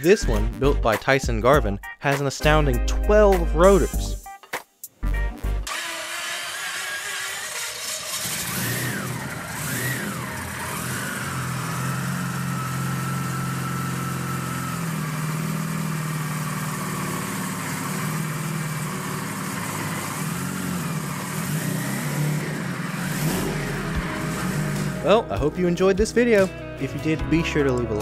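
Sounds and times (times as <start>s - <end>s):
rotary engine running: 5.7s - 25.2s.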